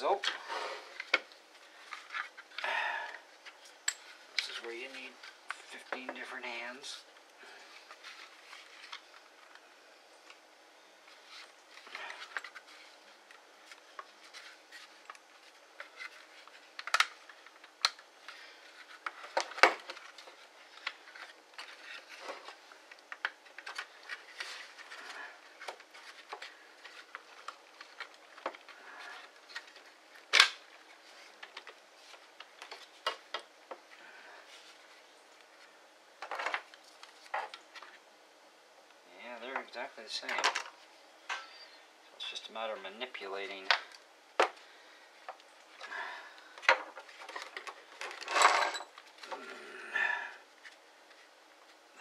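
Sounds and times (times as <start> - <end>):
plastic parts clicking and rattling: 11.8 - 33.8, 40.2 - 40.8, 46.6 - 49.4.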